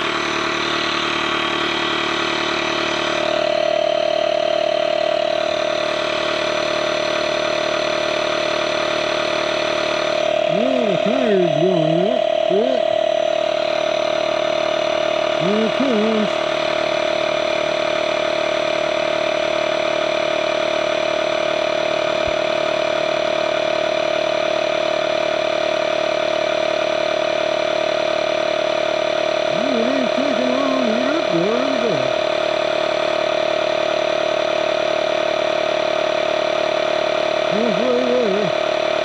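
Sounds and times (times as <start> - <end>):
tire inflator compressor running: 0.0 - 39.0.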